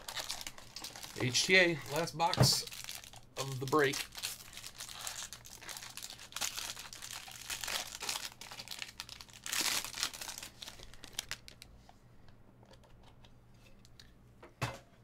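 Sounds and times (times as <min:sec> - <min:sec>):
foil card pack crinkling: 0:00.0 - 0:11.7.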